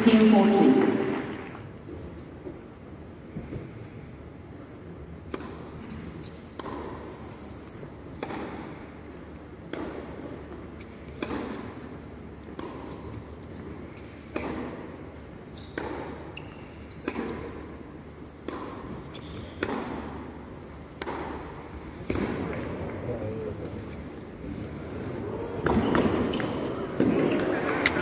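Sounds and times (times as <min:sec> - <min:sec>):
tennis racquet hitting ball: 0:05.3 - 0:05.8, 0:06.5 - 0:07.0, 0:08.1 - 0:08.6, 0:09.6 - 0:10.5, 0:11.1 - 0:13.2, 0:14.3 - 0:15.0, 0:15.7 - 0:22.8.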